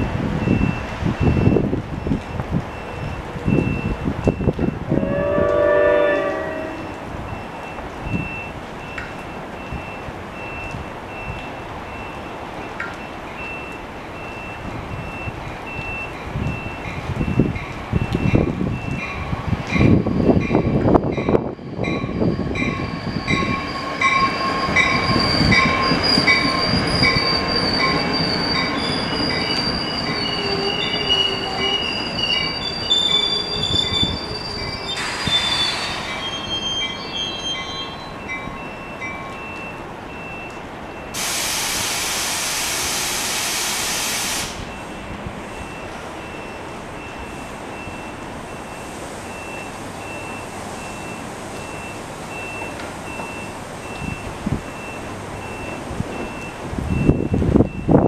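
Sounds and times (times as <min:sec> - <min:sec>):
train rumbling: 0:00.0 - 0:58.0
wheels and brakes squealing: 0:14.6 - 0:41.1
air hiss: 0:35.0 - 0:36.3, 0:41.2 - 0:44.7.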